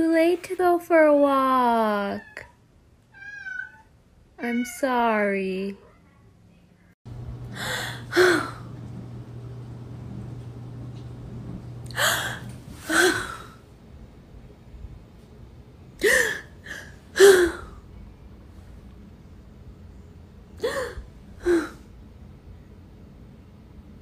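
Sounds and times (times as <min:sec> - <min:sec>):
woman fake-sobbing: 0:16.0 - 0:17.8.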